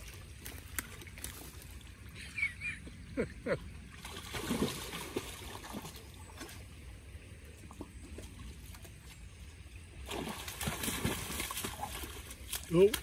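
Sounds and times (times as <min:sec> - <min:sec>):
water sloshing around dog's legs: 0:00.0 - 0:02.1, 0:10.0 - 0:13.0
stream running: 0:00.0 - 0:13.0
faint splashes: 0:03.8 - 0:13.0.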